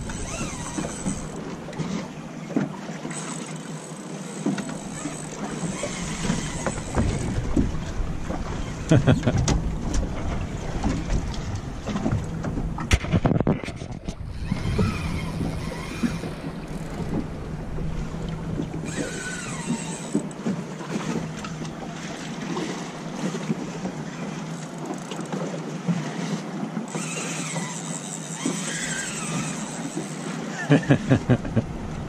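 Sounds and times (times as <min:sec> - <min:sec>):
water lapping against hull: 0:00.0 - 0:32.0
wind buffeting microphone: 0:06.0 - 0:19.1.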